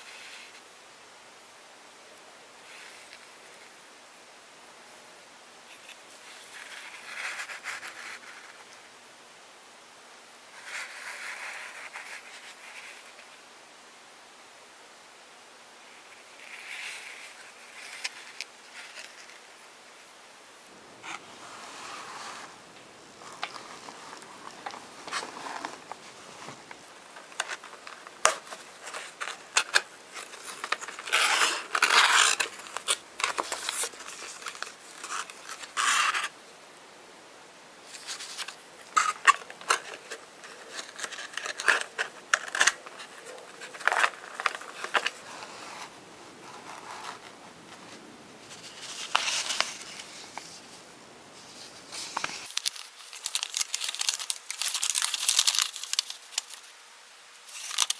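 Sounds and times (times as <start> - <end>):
paper and card rustling: 5.7 - 8.8, 10.5 - 13.4, 16.1 - 19.6, 23.2 - 36.4, 37.8 - 45.9, 46.6 - 50.8, 51.4 - 56.8, 57.4 - 57.9.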